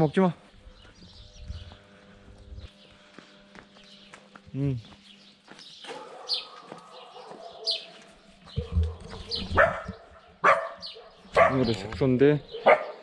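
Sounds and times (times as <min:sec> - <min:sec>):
dog barking: 0:05.8 - 0:11.7, 0:12.5 - 0:13.0.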